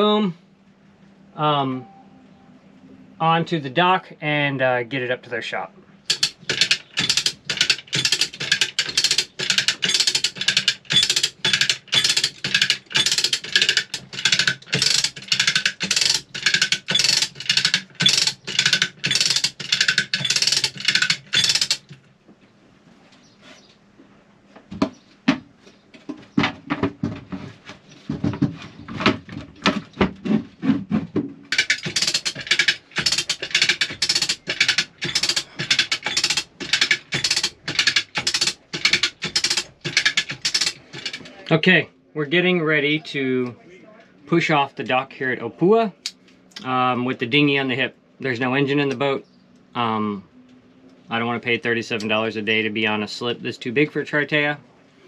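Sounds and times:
scattered knocks: 0:06.1 - 0:22.0, 0:28.1 - 0:41.3
winch ratchet clicking: 0:06.1 - 0:22.0, 0:31.5 - 0:41.4.

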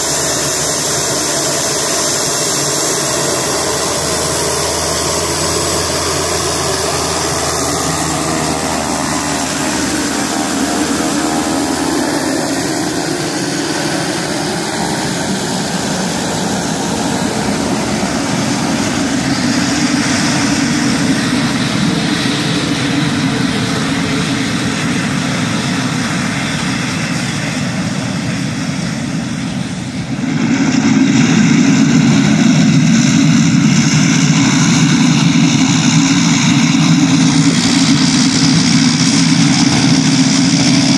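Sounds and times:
turboprop aircraft taxiing: 0:00.0 - 0:40.9.

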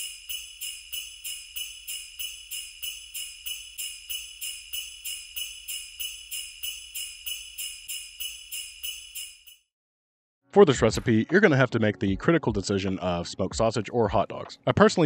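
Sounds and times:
sleigh bells jingling: 0:00.0 - 0:09.7.

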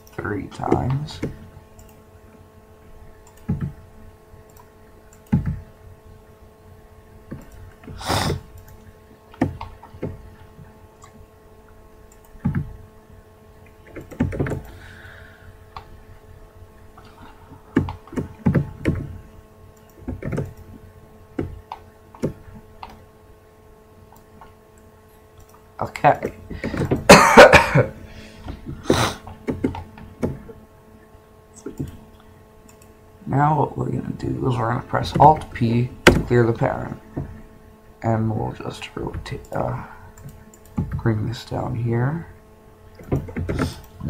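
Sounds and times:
keyboard and mouse clicking: 0:00.0 - 0:02.0, 0:03.2 - 0:03.8, 0:04.5 - 0:05.6, 0:07.3 - 0:10.2, 0:12.1 - 0:12.7, 0:13.8 - 0:14.8, 0:17.8 - 0:19.1, 0:19.8 - 0:20.7, 0:21.4 - 0:23.0, 0:29.3 - 0:30.4, 0:31.6 - 0:32.0, 0:32.7 - 0:32.9, 0:40.2 - 0:41.0, 0:43.0 - 0:44.0
faint electrical hum: 0:00.0 - 0:44.0.

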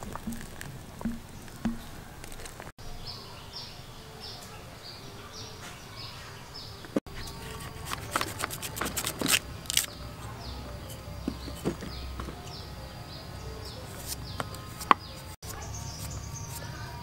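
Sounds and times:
bird chirping: 0:09.1 - 0:17.0.

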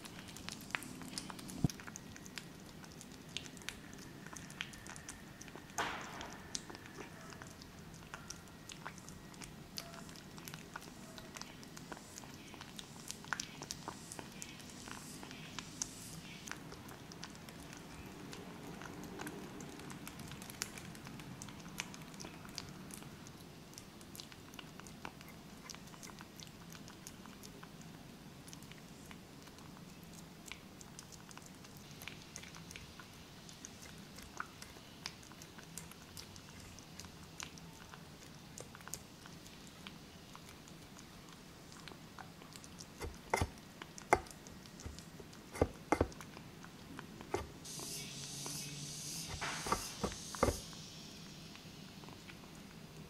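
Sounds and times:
kitten chewing and licking: 0:00.0 - 0:53.0.

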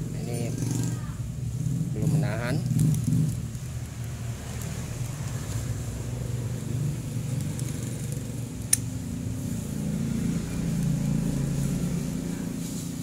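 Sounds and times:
vehicle engine rumbling: 0:00.0 - 0:13.0
sharp metallic click: 0:08.7 - 0:08.9.

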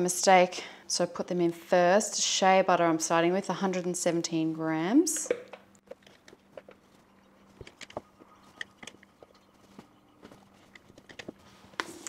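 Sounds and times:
faint low hum: 0:03.2 - 0:12.0.

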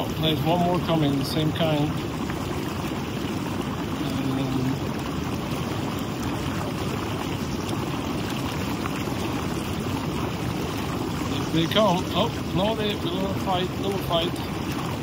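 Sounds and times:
jacuzzi water bubbling: 0:00.0 - 0:15.0.

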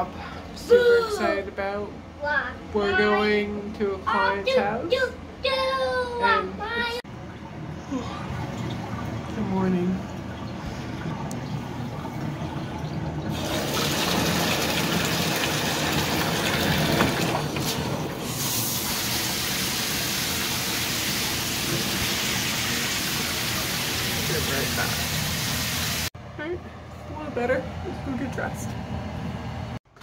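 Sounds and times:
running water rushing: 0:07.1 - 0:26.1.

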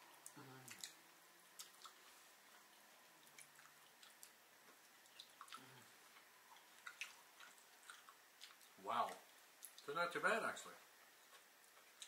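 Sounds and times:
wet chewing and mouth clicks: 0:00.2 - 0:09.9
low hummed voice: 0:00.3 - 0:00.8, 0:05.6 - 0:05.9.

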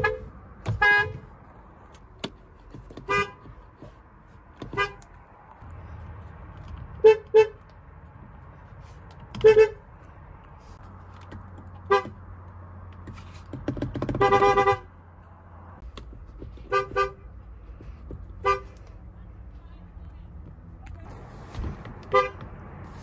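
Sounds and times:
car horn toots: 0:00.0 - 0:01.3, 0:03.0 - 0:03.6, 0:04.6 - 0:05.1, 0:07.0 - 0:07.6, 0:09.3 - 0:09.8, 0:11.8 - 0:12.2, 0:14.0 - 0:14.9, 0:16.6 - 0:17.3, 0:18.4 - 0:18.8, 0:22.0 - 0:22.5.

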